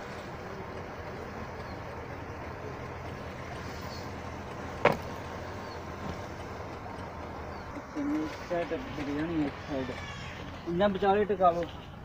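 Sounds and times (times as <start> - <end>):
metallic clunk in engine bay: 4.8 - 5.2.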